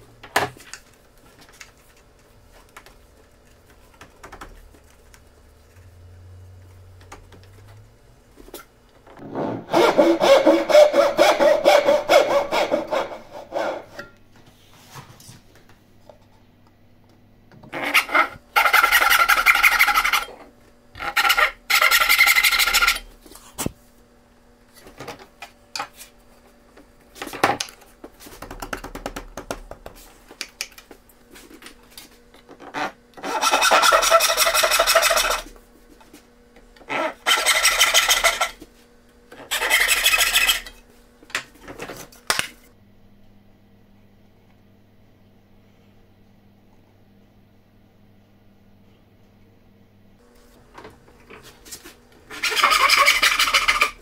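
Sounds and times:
hand saw cutting wood: 9.4 - 14.0, 17.8 - 20.4, 33.2 - 35.5, 36.9 - 38.6, 39.4 - 40.8, 52.3 - 54.0.

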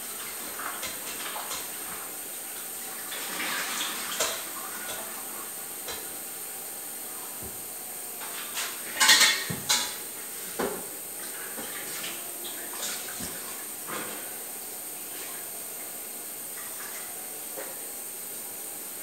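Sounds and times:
pots and dishes clattering: 0.5 - 2.1, 3.1 - 5.2, 5.8 - 6.1, 8.2 - 11.9, 12.8 - 14.4.

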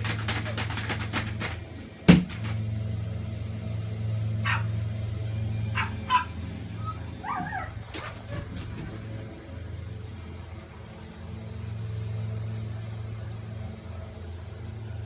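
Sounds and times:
low hum: 0.0 - 15.0
dog barking: 4.4 - 4.7, 5.7 - 6.4, 7.2 - 8.4
dog yipping: 4.4 - 4.8, 5.7 - 8.6.

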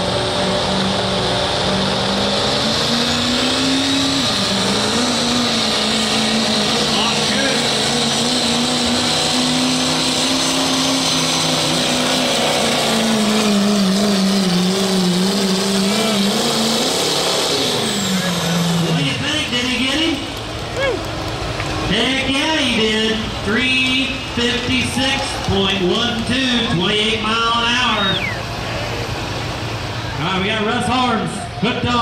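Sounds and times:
diesel engine under load: 0.0 - 32.0
high turbo whistle: 27.8 - 28.5.

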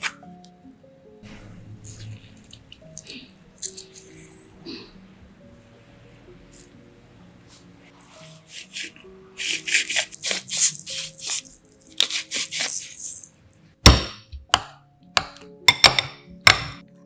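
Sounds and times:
soft background music: 0.0 - 17.0
pepper mill grinding: 2.8 - 4.4, 8.5 - 13.3.

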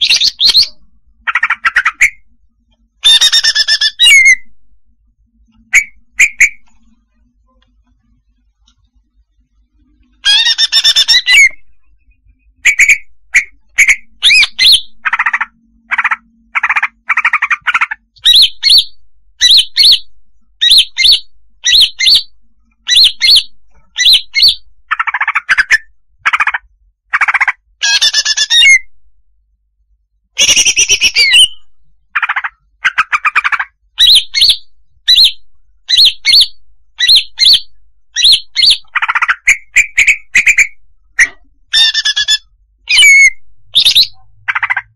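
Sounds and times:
scratchy warbled bird phrases: 0.0 - 2.2, 12.6 - 20.0, 22.9 - 28.8, 32.2 - 35.3, 38.2 - 44.9
bird chirping and squawking: 0.0 - 2.3, 3.0 - 4.5, 5.7 - 6.7, 10.2 - 28.9, 30.4 - 44.9.

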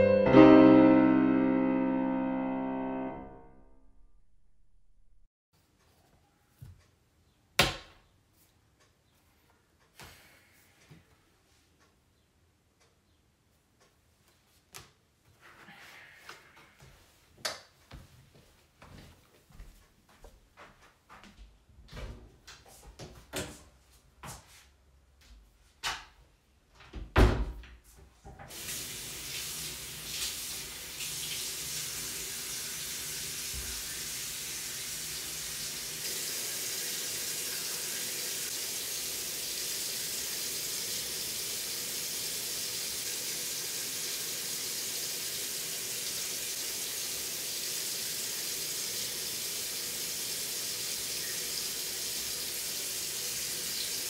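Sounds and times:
sink tap running: 28.5 - 54.0.

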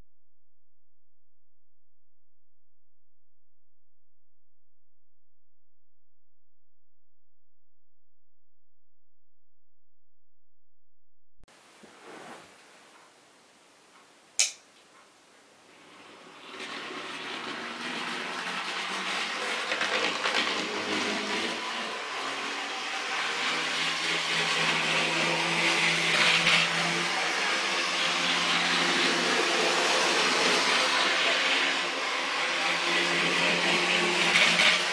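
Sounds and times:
sharp click: 14.4 - 14.7
model train wheels on rails: 15.8 - 34.9
model train motor whirring: 16.4 - 34.9.

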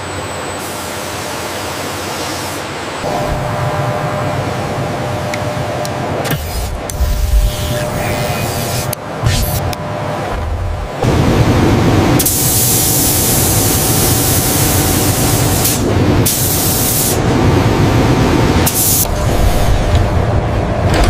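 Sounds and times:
low machine rumble: 2.8 - 21.0
spray gun hissing: 12.2 - 17.2.

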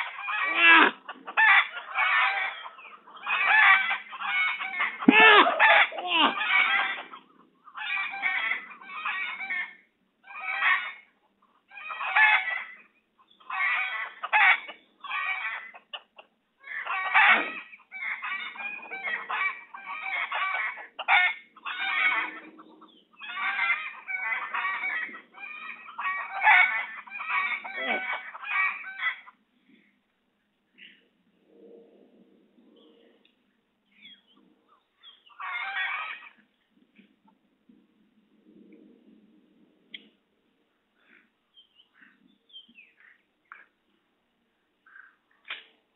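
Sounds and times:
domestic fowl calling: 0.0 - 29.9, 35.0 - 36.5.

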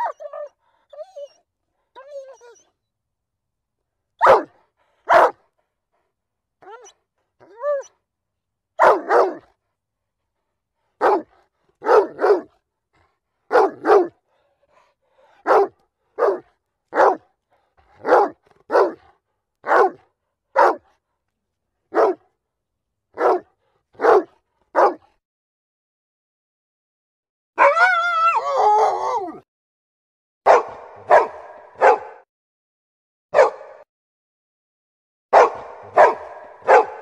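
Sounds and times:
dog whining: 0.0 - 1.4, 2.0 - 2.7, 6.6 - 7.9
dog barking: 4.2 - 5.5, 8.8 - 9.6, 11.0 - 12.6, 13.5 - 14.2, 15.2 - 17.3, 17.9 - 20.9, 21.9 - 22.3, 23.2 - 25.1, 30.5 - 32.3, 33.3 - 33.8, 35.3 - 37.0.

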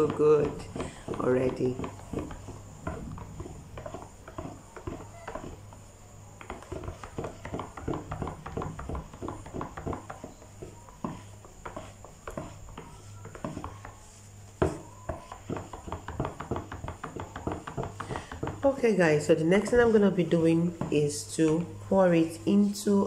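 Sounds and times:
spatula scraping plastic jug: 0.0 - 23.0.

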